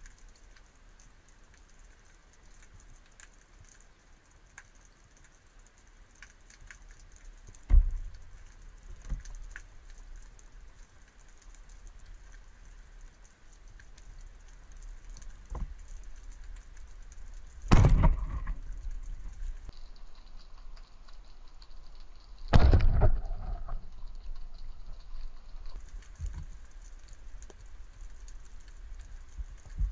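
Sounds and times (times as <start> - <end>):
underwater crackle of clicks: 0.0 - 29.9
rushing thumps: 17.7 - 19.4.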